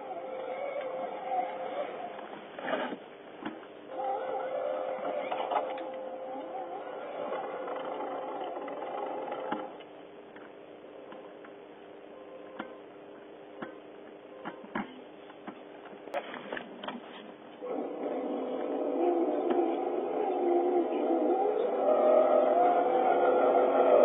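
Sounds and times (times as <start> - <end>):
electric motor and gear whine: 0.0 - 3.0, 3.9 - 9.9, 17.6 - 24.0
faint steady hum: 0.0 - 24.0.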